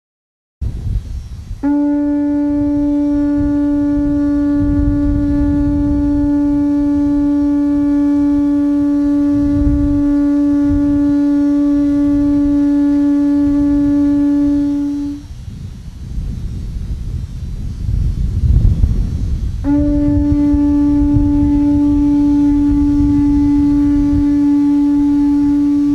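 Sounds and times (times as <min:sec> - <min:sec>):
conch shell trumpet note: 0:01.5 - 0:15.4, 0:19.5 - 0:25.9.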